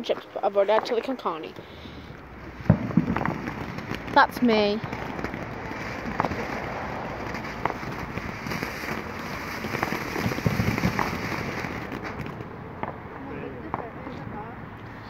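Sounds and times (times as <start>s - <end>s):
firework hissing crackle: 1.5s - 12.5s
firework pops: 2.6s - 13.0s.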